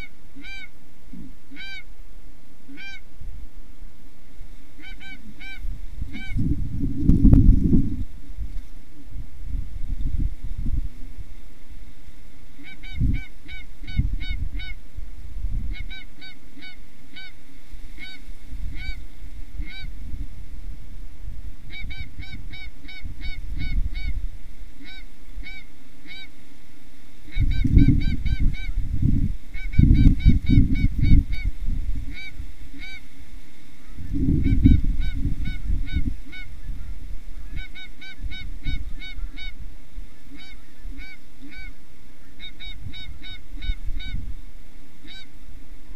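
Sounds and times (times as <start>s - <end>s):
geese honking: 0.0s - 0.8s, 1.5s - 1.9s, 2.7s - 3.1s, 4.8s - 6.4s, 15.7s - 17.4s, 18.0s - 19.0s, 19.6s - 19.9s, 24.8s - 26.4s, 32.1s - 33.1s, 33.8s - 44.2s, 45.0s - 45.3s.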